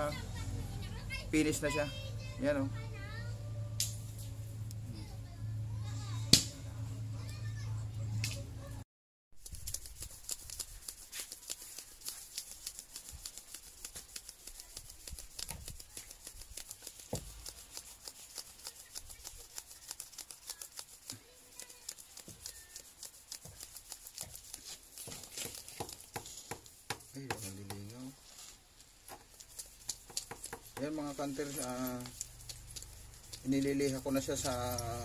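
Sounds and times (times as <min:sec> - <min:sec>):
metal lure scratching on sandpaper: 0:09.4 - 0:35.0.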